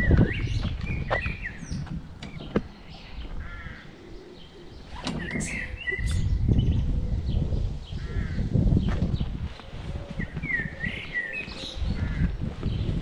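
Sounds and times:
birds chirping: 0.0s - 13.0s.

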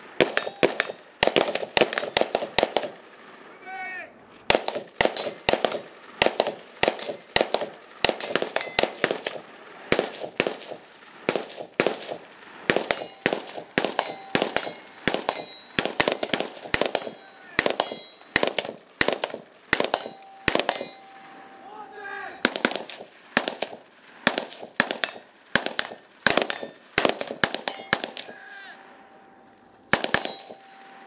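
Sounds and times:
gunshots with short echo: 4.4s - 28.4s, 29.8s - 31.0s.

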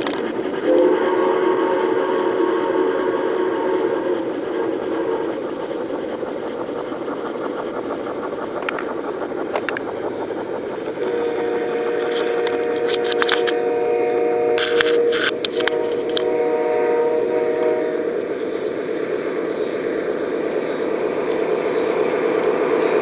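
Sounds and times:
sharp clicks and knocks: 0.0s - 0.7s, 4.2s - 13.6s, 14.6s - 16.3s
model trains rolling rumble: 0.0s - 23.0s.

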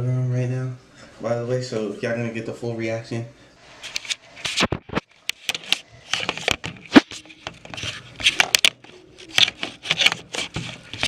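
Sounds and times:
fabric rubbing on microphone: 3.7s - 11.0s
scrapes and knocks: 3.8s - 11.0s.

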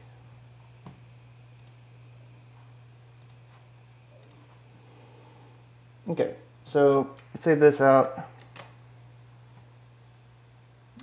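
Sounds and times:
steady low hum: 0.0s - 11.0s
computer mouse clicks: 3.2s - 3.4s, 4.2s - 4.4s.

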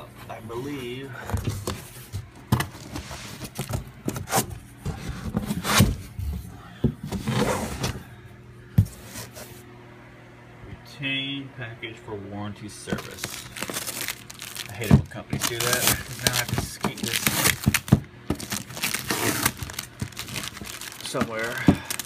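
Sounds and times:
fan hum: 0.0s - 22.0s
plastic wrapping crinkling: 12.9s - 22.0s.

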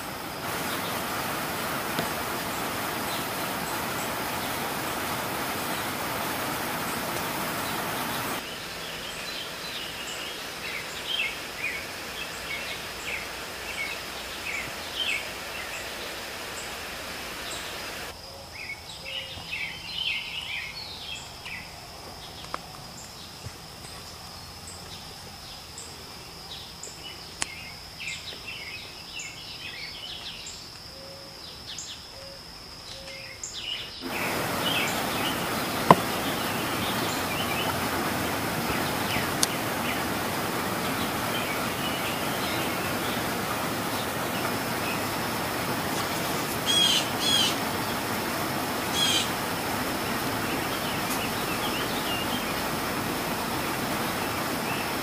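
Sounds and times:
small birds chirping: 0.0s - 30.7s, 32.9s - 55.0s
faint clicks: 39.4s - 39.6s.

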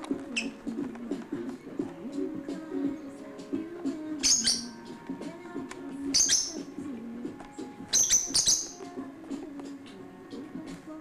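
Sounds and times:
bird chirping: 0.2s - 0.8s, 4.2s - 5.0s, 6.1s - 6.8s, 7.7s - 9.0s.

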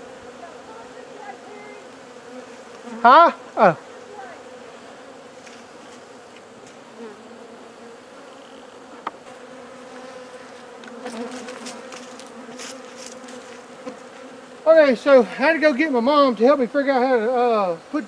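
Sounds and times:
honey bees buzzing: 0.0s - 18.0s.

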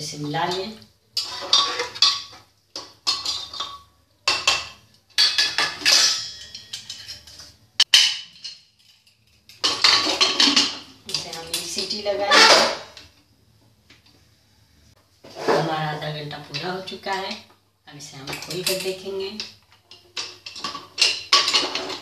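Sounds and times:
metal ladle scraping a pot: 1.2s - 2.4s.

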